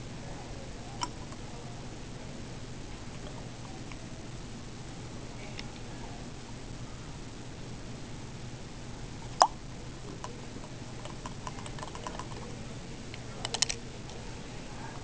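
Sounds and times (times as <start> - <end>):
small containers clicking and tapping: 10.1 - 12.5, 13.4 - 13.8.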